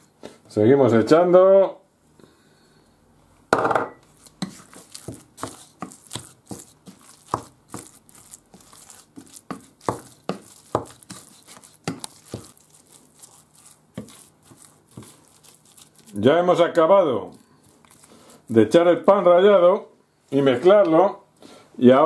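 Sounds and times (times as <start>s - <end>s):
wooden spoon scraping glass bowl: 4.0s - 16.6s, 17.3s - 19.2s.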